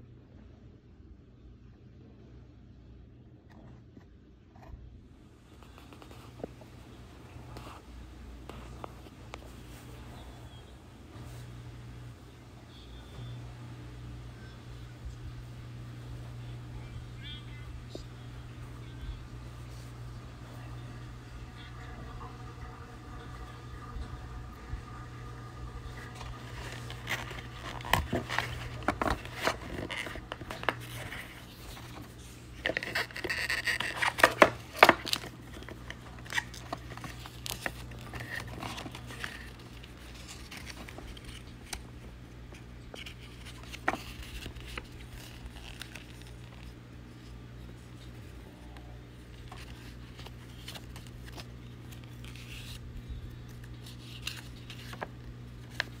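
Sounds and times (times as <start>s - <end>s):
steady low hum: 0.0s - 56.0s
packaging rustling and scraping: 25.9s - 56.0s.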